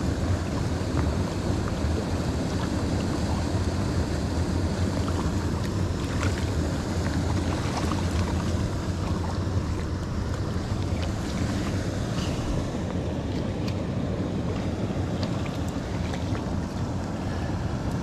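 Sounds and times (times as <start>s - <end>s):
water pouring over weir: 0.0s - 12.6s
wind rumble on microphone: 0.0s - 18.0s
fish splashing: 4.5s - 13.8s.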